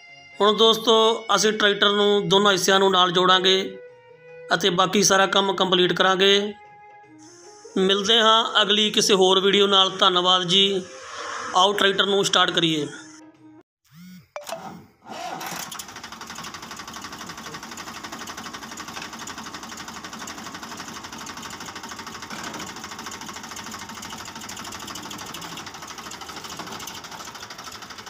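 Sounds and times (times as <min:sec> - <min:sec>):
tractor diesel engine idling: 0:15.7 - 0:28.0.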